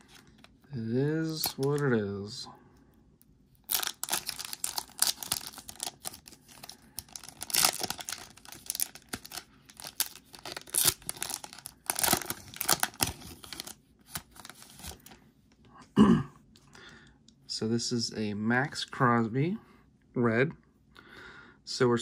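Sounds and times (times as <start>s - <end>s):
foil wrapper crinkling and tearing: 1.3s - 1.9s, 3.6s - 15.2s.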